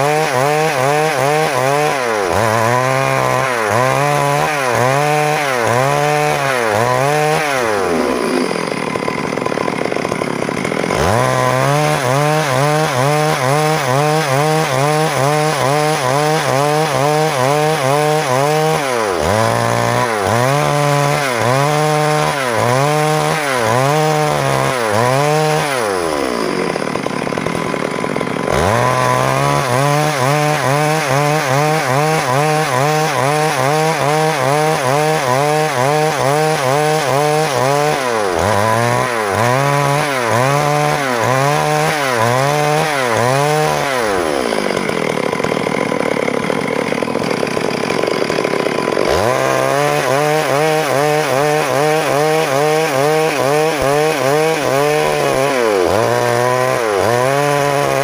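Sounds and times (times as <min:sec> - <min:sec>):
chainsaw ripping log: 0:00.0 - 0:58.0.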